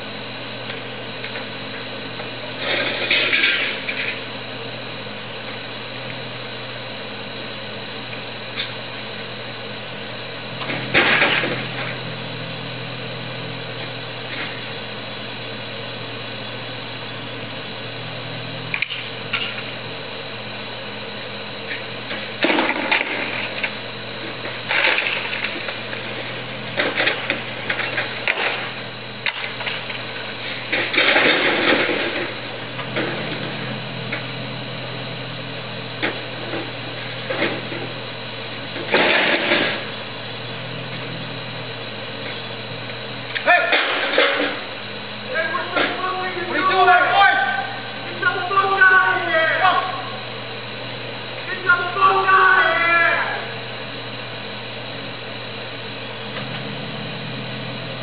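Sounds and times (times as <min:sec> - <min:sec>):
mechanical hum with high whine: 0:00.0 - 0:58.0.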